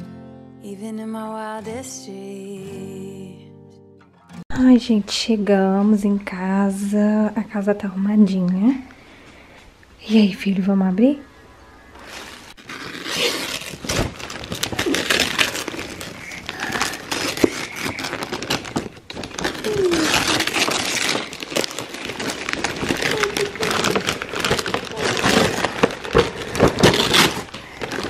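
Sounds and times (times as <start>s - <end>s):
wrapping paper tearing and crumpling: 12.0s - 28.0s.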